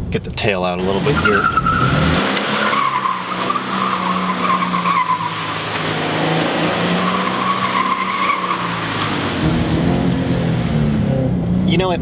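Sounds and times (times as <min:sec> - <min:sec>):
tyres squealing: 0:00.8 - 0:09.8
car engine at held revs: 0:00.8 - 0:11.4.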